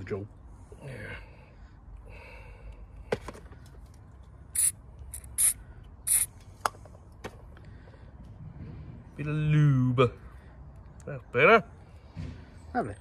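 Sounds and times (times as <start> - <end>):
aerosol can spraying: 4.6 - 6.3.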